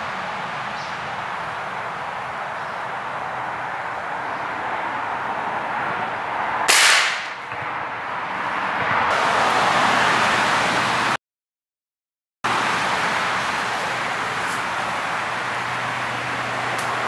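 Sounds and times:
gunshot: 0:06.7 - 0:07.4.

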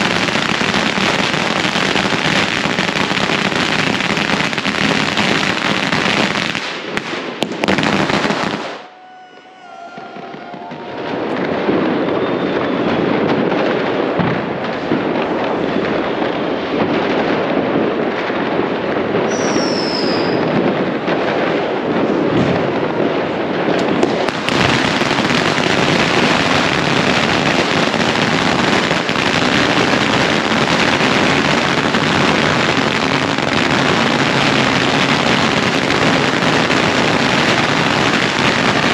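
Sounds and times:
fireworks crackling and banging: 0:00.0 - 0:38.9
high falling whistle: 0:08.7 - 0:13.3, 0:19.3 - 0:20.5.

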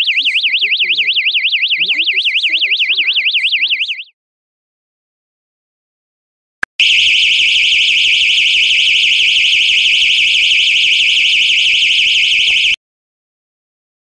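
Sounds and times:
electronic alarm siren warbling: 0:00.0 - 0:04.2, 0:06.8 - 0:12.8.

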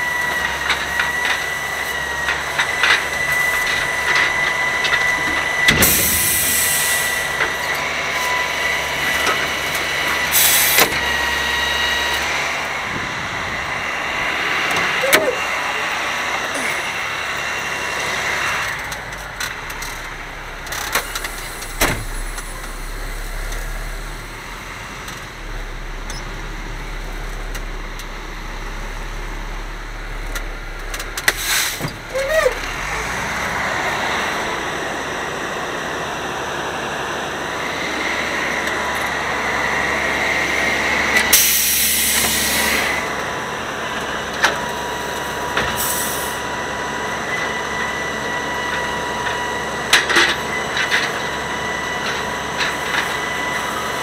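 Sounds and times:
diesel engine running: 0:00.0 - 0:54.0
loud air hiss: 0:05.8 - 0:07.3, 0:41.4 - 0:42.8.

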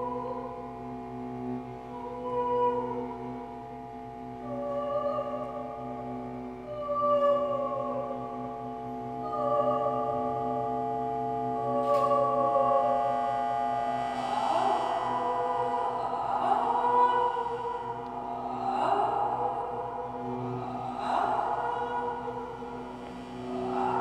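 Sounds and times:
woman singing operatic notes: 0:00.0 - 0:01.0, 0:01.6 - 0:24.0
steady drone: 0:00.0 - 0:24.0.

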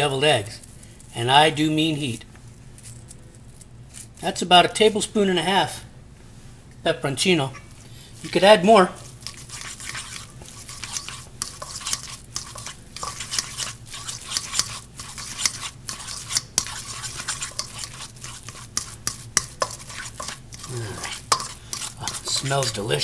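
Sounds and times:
fork clinking and scraping bowl: 0:08.2 - 0:23.0.

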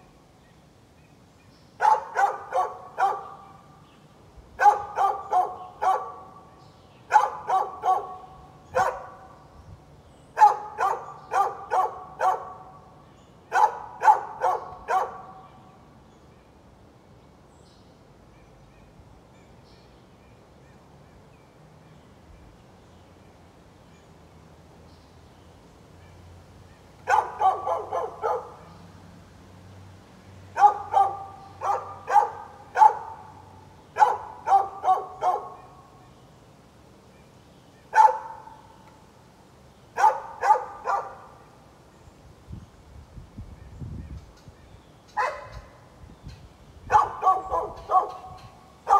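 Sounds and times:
dog barking: 0:01.8 - 0:03.5, 0:04.6 - 0:06.4, 0:07.1 - 0:09.3, 0:10.4 - 0:12.8, 0:13.5 - 0:15.4, 0:27.0 - 0:28.7, 0:30.6 - 0:33.3, 0:34.0 - 0:35.8, 0:37.9 - 0:38.6, 0:40.0 - 0:41.3, 0:45.2 - 0:45.6, 0:46.9 - 0:48.9.

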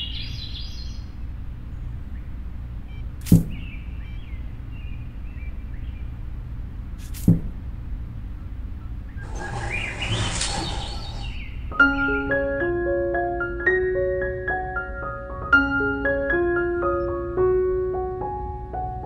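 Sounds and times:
cardboard rustling scrape: 0:09.2 - 0:11.4
faint bird chirping: 0:09.2 - 0:11.6.

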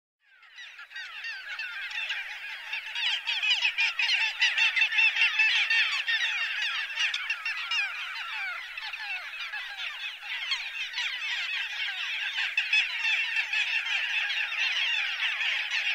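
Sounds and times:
gulls calling: 0:00.3 - 0:15.9.

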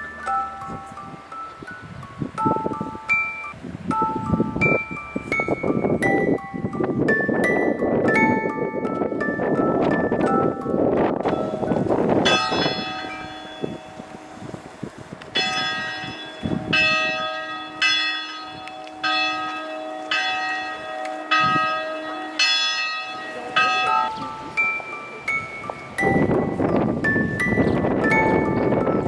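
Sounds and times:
church bell tolling: 0:10.0 - 0:29.0.

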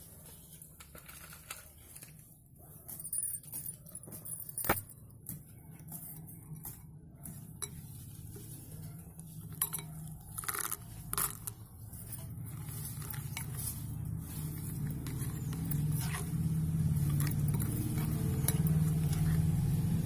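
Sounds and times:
spoon clinking against glass bowl: 0:07.6 - 0:08.0, 0:09.4 - 0:11.5, 0:17.0 - 0:19.6.

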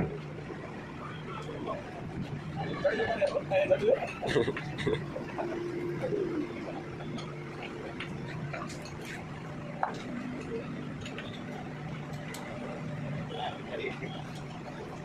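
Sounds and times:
tools tapping on steel rollers: 0:06.6 - 0:13.2.

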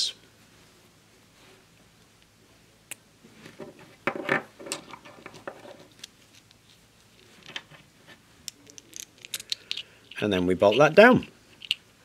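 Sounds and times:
small parts clicking: 0:08.4 - 0:10.9, 0:11.5 - 0:11.8.

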